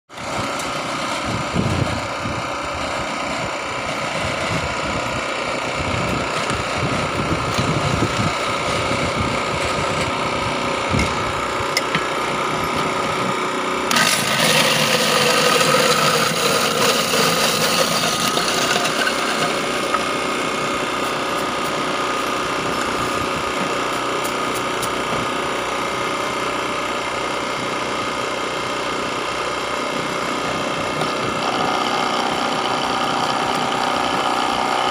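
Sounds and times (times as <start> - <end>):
generator running: 0.1 - 34.9
ice shaver grinding ice: 11.6 - 26.4, 30.1 - 34.9.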